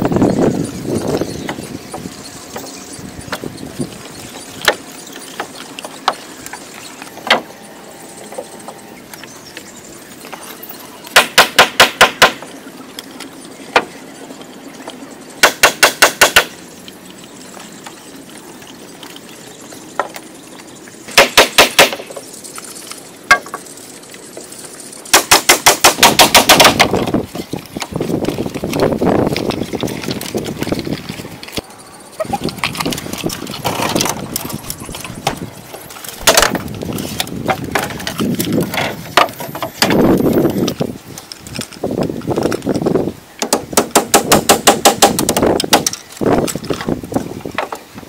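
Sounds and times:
rapid hammer blows: 0:25.1 - 0:27.2.

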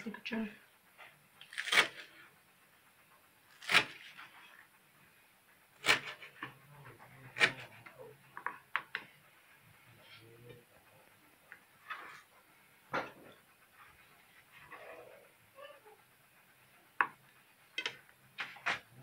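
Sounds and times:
knife cutting herbs on plastic board: 0:01.4 - 0:02.2, 0:03.5 - 0:04.4, 0:05.8 - 0:06.6, 0:07.2 - 0:09.1.

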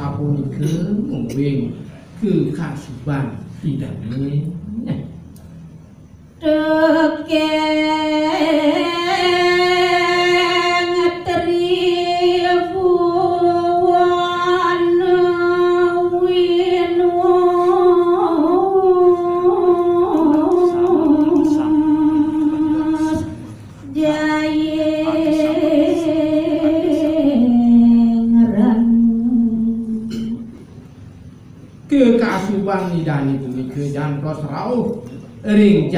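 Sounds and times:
woman chanting: 0:06.4 - 0:30.4.

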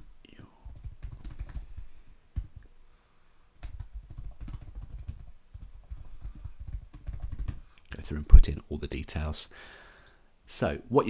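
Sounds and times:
typing on keyboard: 0:00.6 - 0:01.8, 0:03.6 - 0:07.6.

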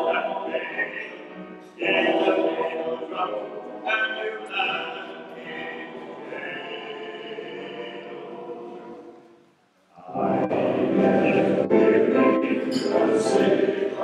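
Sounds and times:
male voice choir singing: 0:00.0 - 0:09.3, 0:09.9 - 0:14.0.

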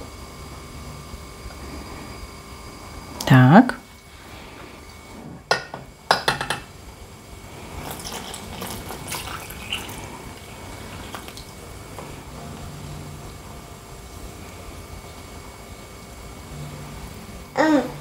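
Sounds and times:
milk pouring into a bowl: 0:07.5 - 0:12.0.

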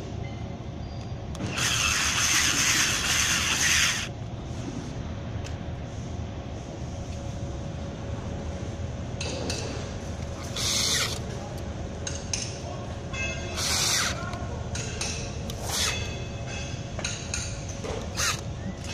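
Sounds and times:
workshop background noise: 0:00.0 - 0:18.9
cordless drill bursts: 0:01.4 - 0:04.1, 0:10.4 - 0:11.2, 0:13.6 - 0:14.2, 0:18.1 - 0:18.9.

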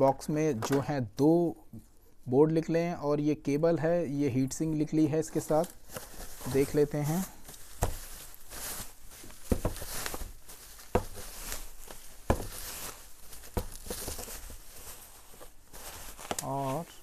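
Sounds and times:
bubble wrap crinkling: 0:04.8 - 0:17.0.

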